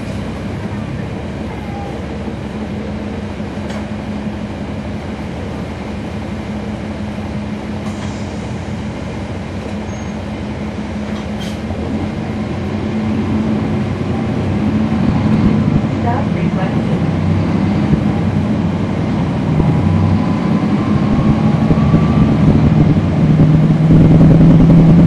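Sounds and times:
bus engine low drone: 0.0s - 25.0s.

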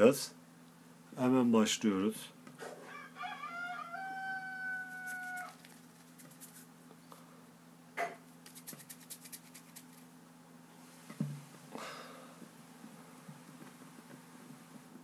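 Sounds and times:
rooster crowing: 2.8s - 5.6s
steady low hum: 4.8s - 15.0s.

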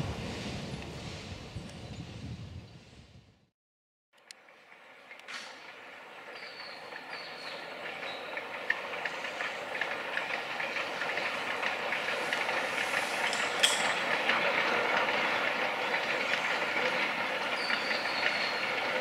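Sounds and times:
steam train wheels clattering: 4.7s - 19.0s.

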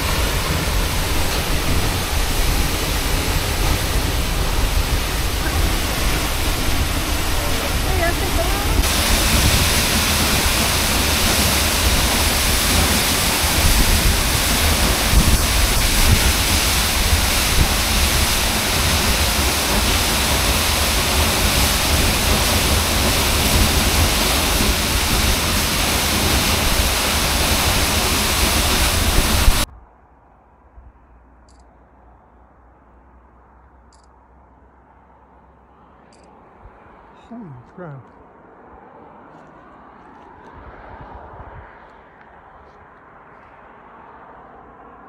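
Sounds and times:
waterfall rushing: 0.0s - 29.7s.

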